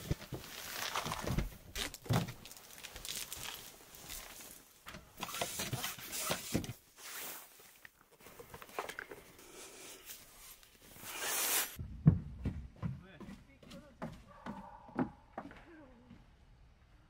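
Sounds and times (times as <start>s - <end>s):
tent canvas rustling: 0.0s - 8.8s, 9.8s - 11.8s
air hissing: 10.9s - 11.8s.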